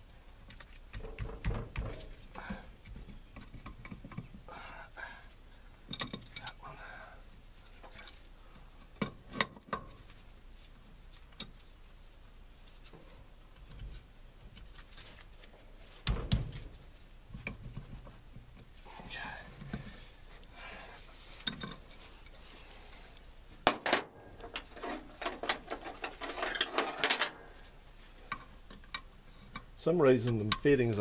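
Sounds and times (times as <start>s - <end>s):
hand tools clinking: 23.8s - 27.4s.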